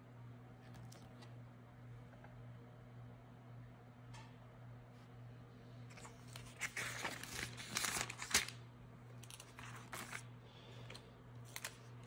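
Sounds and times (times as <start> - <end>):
faint low hum: 0.0 - 12.0
book pages flipping: 0.6 - 1.4, 5.9 - 12.0.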